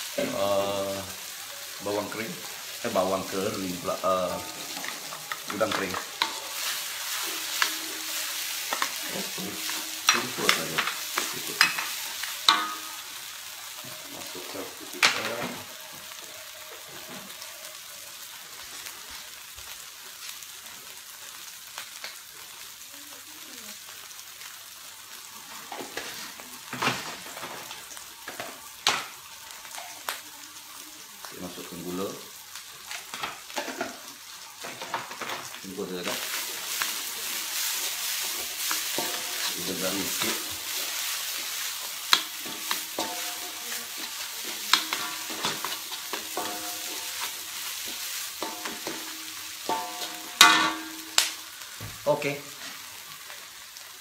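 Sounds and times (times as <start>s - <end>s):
food sizzling in a wok: 0.0s - 54.0s
spatula knocking ringing wok: 11.6s - 13.1s, 42.1s - 43.7s, 44.7s - 47.4s, 48.4s - 51.2s
wooden spatula scraping wok: 36.0s - 51.2s.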